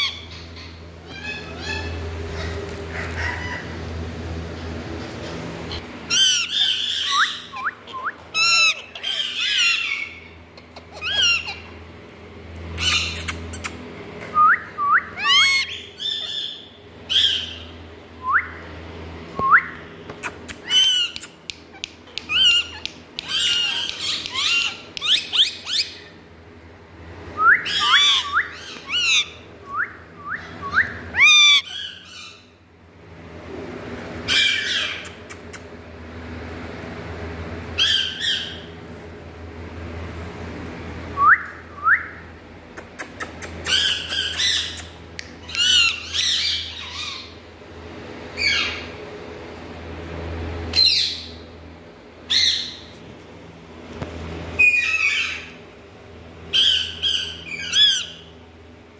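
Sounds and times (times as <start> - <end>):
parakeets squawking and chirping: 0.0 - 11.8, 12.7 - 13.8, 15.2 - 17.8, 20.2 - 26.2, 27.6 - 29.5, 30.4 - 32.5, 34.2 - 35.5, 37.7 - 38.8, 43.1 - 47.4, 48.3 - 49.0, 50.7 - 51.4, 52.3 - 52.9, 54.6 - 55.6, 56.5 - 58.3.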